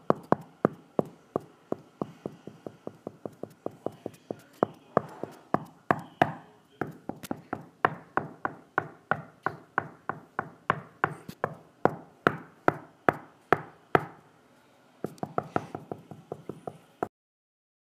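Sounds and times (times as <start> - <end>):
sharp rhythmic knocks: 0.0 - 14.2.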